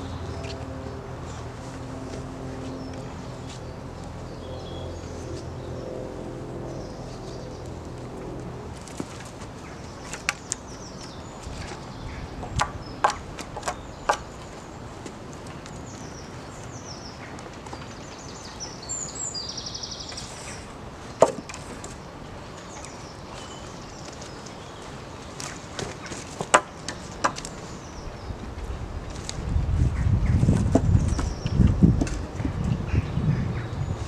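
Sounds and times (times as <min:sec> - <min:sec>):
birds chirping: 0:00.0 - 0:34.0
wooden poles knocking: 0:12.4 - 0:14.3, 0:21.2 - 0:21.9, 0:25.8 - 0:27.5, 0:30.6 - 0:32.7.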